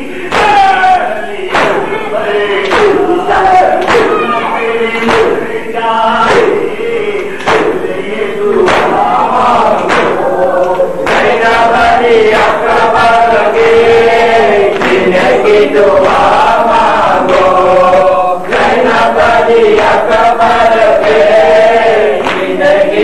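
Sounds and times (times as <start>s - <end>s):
men chanting in unison: 0.0s - 23.0s
chest-beating slaps: 0.3s - 0.8s, 1.5s - 4.4s, 5.0s - 5.5s, 6.2s - 8.0s, 8.6s - 11.5s, 14.7s - 16.3s.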